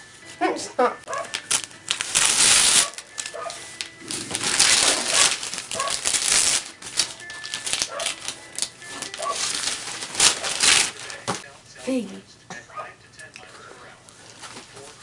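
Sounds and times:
wrapping paper ripping and rustling: 1.0s - 11.4s.

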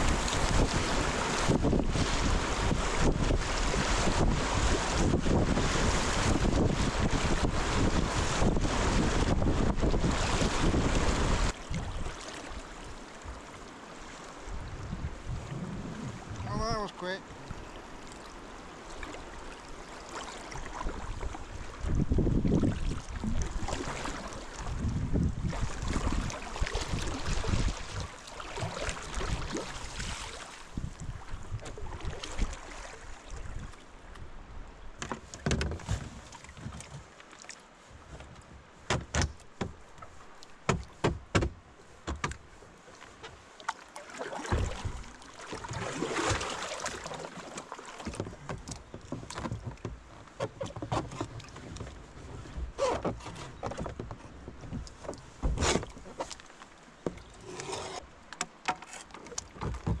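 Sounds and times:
paddle strokes in water: 0.0s - 60.0s
sharp knocks: 40.7s - 42.4s.

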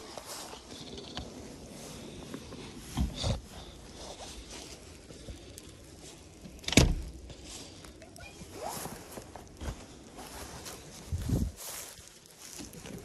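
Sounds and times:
snow shovel scraping and crunching: 0.0s - 4.8s, 8.4s - 13.0s.

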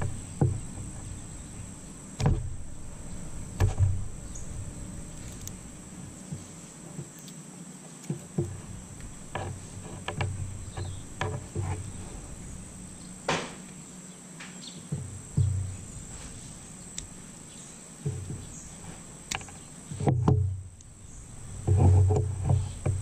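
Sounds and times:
crickets droning: 0.0s - 23.0s
light knocks: 13.2s - 13.8s.

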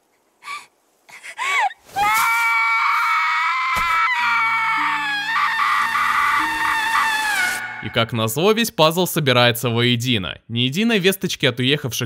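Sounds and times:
girl screaming: 1.4s - 7.9s
rising and falling cry: 1.6s - 8.1s.

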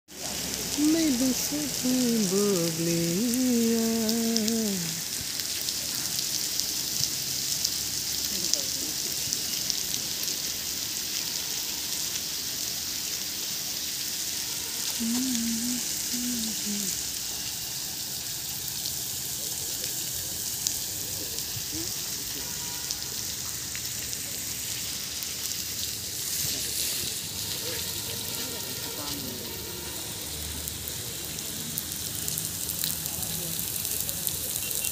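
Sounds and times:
fountain water splashing: 0.1s - 34.9s
person singing long notes: 0.7s - 5.1s, 15.0s - 17.0s.

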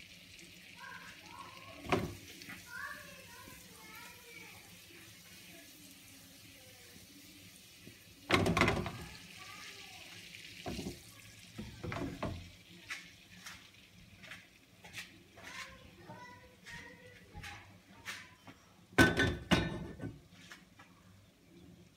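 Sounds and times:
fat sizzling in a frying pan: 0.0s - 21.9s
pan clattering on metal grate: 8.3s - 9.0s, 19.0s - 20.2s.

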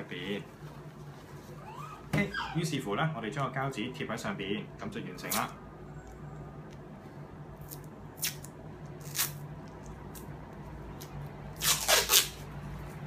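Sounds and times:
cloth and paper wrap rustling: 0.0s - 2.8s.

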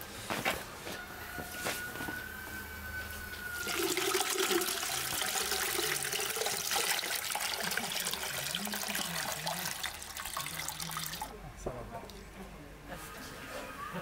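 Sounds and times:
water pouring into a metal vessel: 3.5s - 11.3s.

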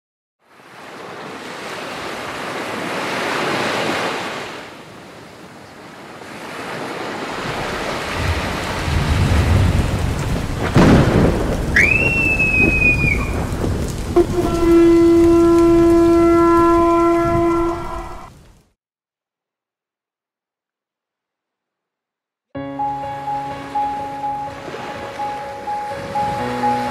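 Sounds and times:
rushing rain: 6.5s - 18.7s, 24.4s - 26.9s
rolling thunder: 7.4s - 18.3s
low horn-like note: 14.1s - 18.3s.

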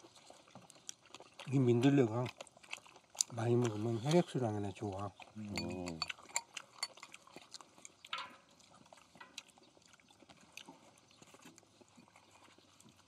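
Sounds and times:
pork fat sizzling and crackling: 0.0s - 9.6s.

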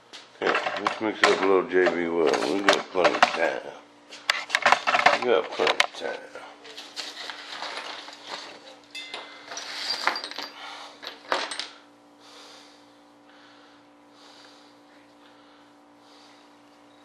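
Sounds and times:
metal tools clattering on workbench: 0.4s - 3.5s, 4.6s - 5.8s, 6.8s - 11.8s.

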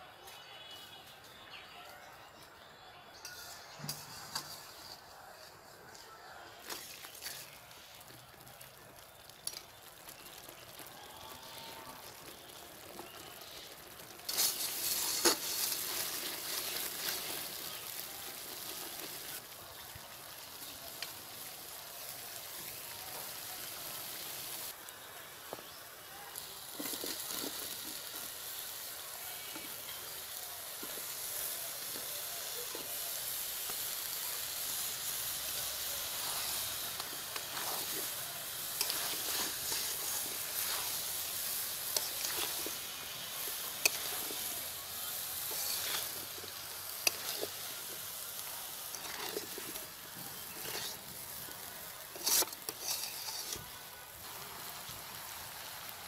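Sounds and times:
paste sizzling in oil: 3.2s - 56.0s
metal spatula scraping pan: 45.4s - 46.2s, 52.1s - 53.6s.

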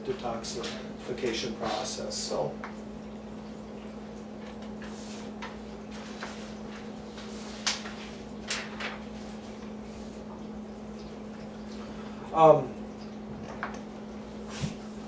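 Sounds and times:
paper rustling: 4.4s - 9.7s.

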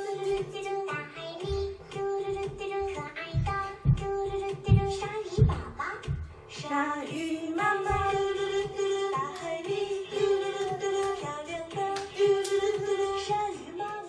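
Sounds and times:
voices singing children's song: 0.0s - 14.0s
steady beat: 2.2s - 6.3s.

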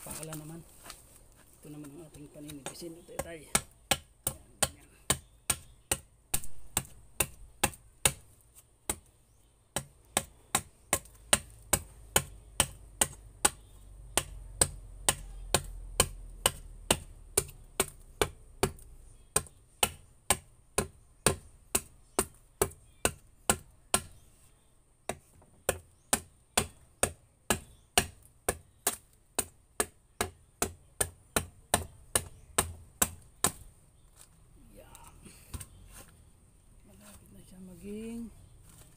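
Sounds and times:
machete chopping wood: 1.8s - 9.1s, 9.8s - 24.2s, 25.1s - 33.7s.

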